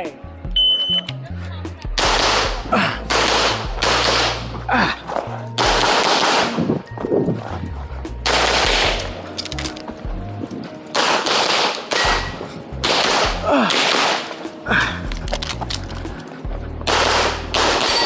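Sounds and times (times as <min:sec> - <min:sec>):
background music with bass line: 0:00.0 - 0:18.0
pistol gunfire: 0:02.0 - 0:04.5, 0:05.6 - 0:06.7, 0:08.3 - 0:09.1, 0:10.9 - 0:14.6, 0:16.9 - 0:18.0.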